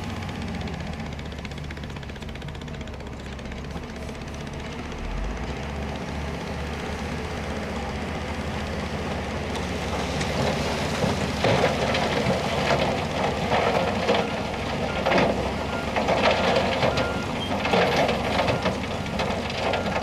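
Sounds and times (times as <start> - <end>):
diesel engines droning: 0.0 - 20.0.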